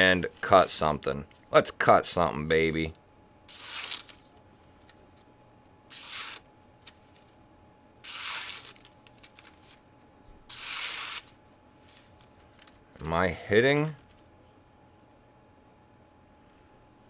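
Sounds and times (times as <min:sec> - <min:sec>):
knife slicing paper: 0:03.5 - 0:04.2, 0:05.9 - 0:06.4, 0:08.0 - 0:09.8, 0:10.5 - 0:11.3.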